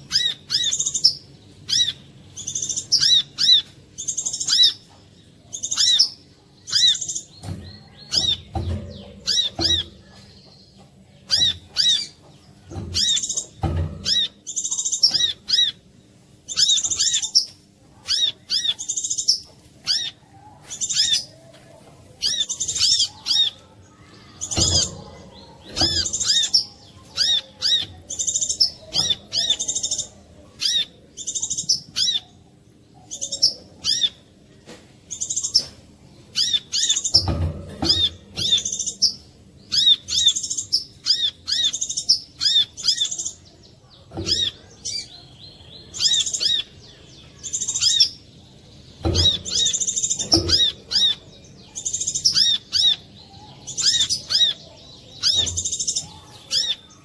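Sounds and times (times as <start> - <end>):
bird singing high sharp chirps: 49.0 - 54.6.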